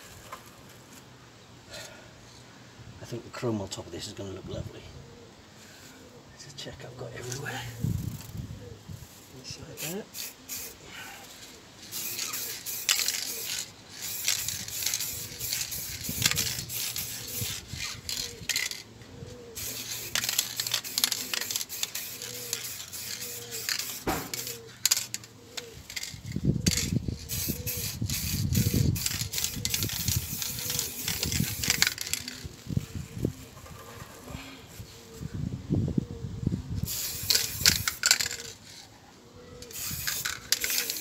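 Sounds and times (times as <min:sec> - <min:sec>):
spray can hissing: 0:09.8 - 0:10.8, 0:11.8 - 0:18.8, 0:19.6 - 0:25.2, 0:26.7 - 0:32.5, 0:36.8 - 0:38.5, 0:39.7 - 0:41.0.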